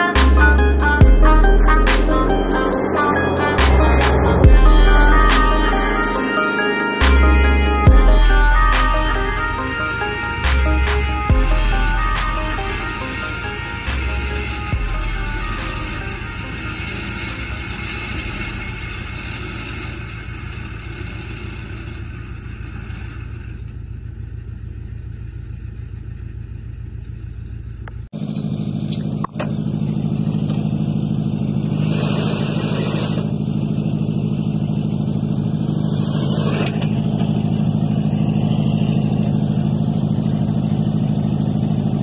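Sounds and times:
strong low hum: 0.0 - 28.1
truck engine running: 0.0 - 42.0.

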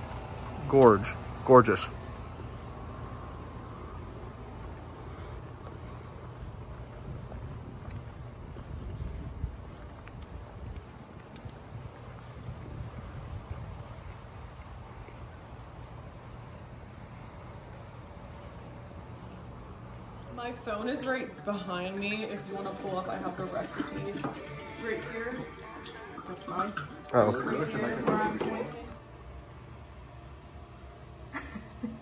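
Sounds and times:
crickets chirping: 0.0 - 21.6.

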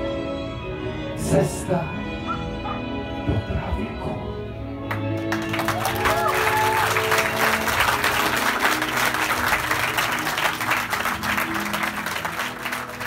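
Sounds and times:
background music with sustained notes: 0.0 - 13.0
audience clapping: 4.9 - 13.0.

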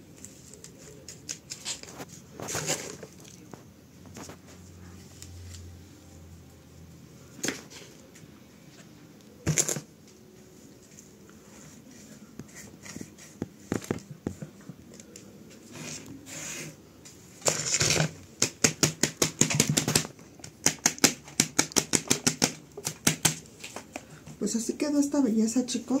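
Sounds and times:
hands scraping potting mix: 0.0 - 5.6
crunching and rustling strokes: 0.0 - 5.7.

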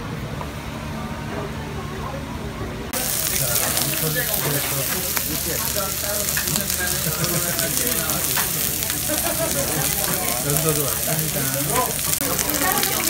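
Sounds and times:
pork sizzling on grill plate: 3.0 - 13.0.

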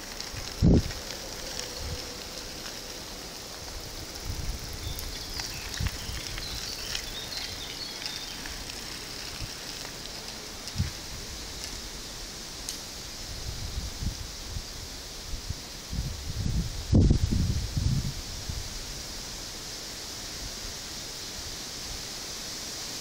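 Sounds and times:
steady hiss: 0.0 - 23.0
wind buffeting microphone: 0.2 - 2.6, 3.6 - 9.6, 10.7 - 11.5, 13.2 - 19.0.

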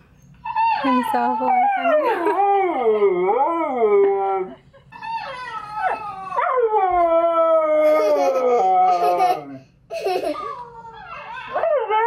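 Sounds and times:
dog howling: 0.5 - 9.2.

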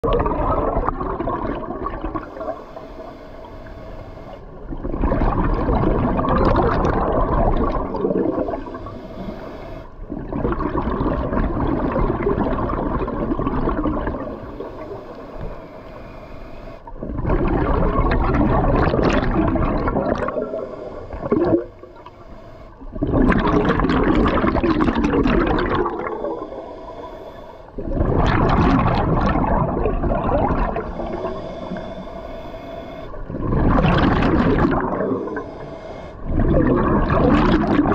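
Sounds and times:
regulator inhalations: 2.2 - 4.5, 8.4 - 10.0, 14.3 - 16.9, 20.3 - 22.9, 25.8 - 27.8, 30.6 - 33.3, 34.7 - 36.6
bubbling diver exhalations: 21.2 - 21.7, 23.0 - 26.5, 27.8 - 31.4, 33.2 - 35.5, 36.2 - 37.9.

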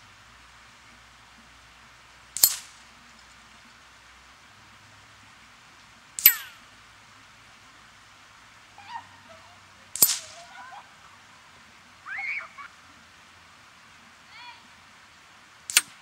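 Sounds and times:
pellets clanging on steel target: 2.4 - 2.8, 6.2 - 6.6, 9.9 - 10.5.

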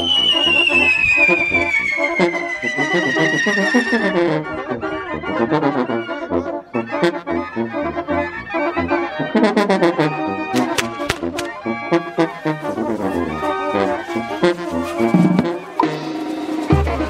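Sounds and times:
reed and brass band music: 0.0 - 17.0
sharp percussion hits: 15.1 - 17.0.

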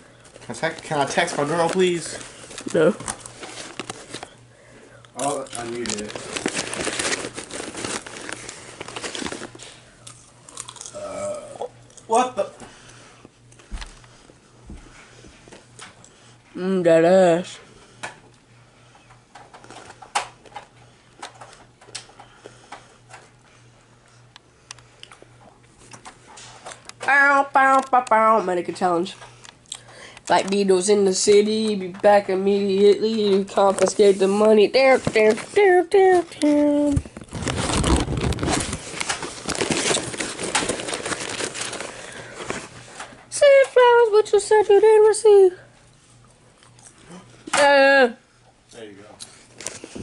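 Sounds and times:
rustling with crackling clicks: 0.2 - 4.4, 5.1 - 10.8, 18.0 - 23.4, 24.0 - 44.5.

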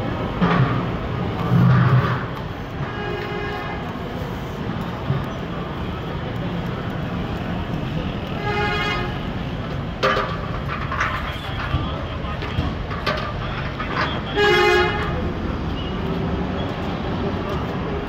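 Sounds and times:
street traffic: 0.0 - 18.0
vehicle horn: 8.4 - 9.2, 14.1 - 15.2.

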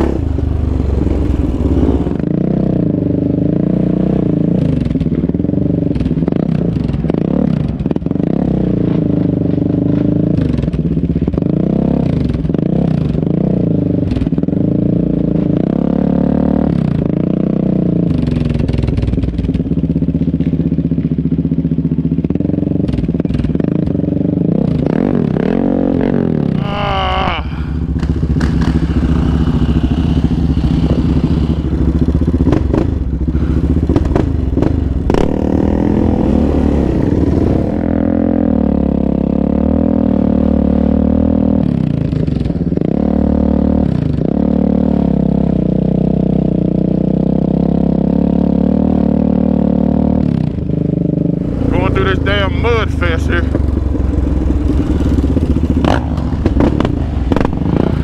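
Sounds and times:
quad engine revving: 0.0 - 4.9, 24.3 - 46.3, 47.5 - 58.0.

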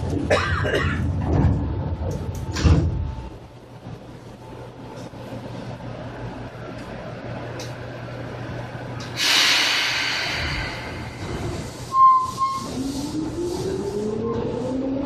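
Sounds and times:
air hiss: 9.1 - 12.0.

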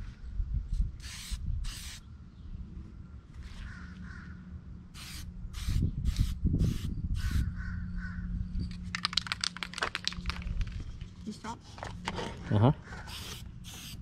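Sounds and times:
spray can hissing: 1.0 - 2.0, 5.0 - 7.4, 13.1 - 14.0
crow cawing: 3.6 - 4.4, 7.4 - 8.3
spray can rattling: 8.8 - 10.7, 13.1 - 14.0.

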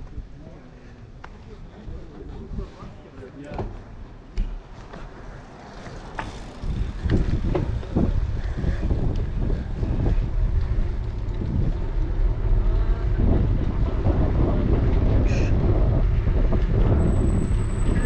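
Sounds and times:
wind rumbling on microphone: 1.4 - 18.0
bicycle rolling over pavement: 4.5 - 18.0.

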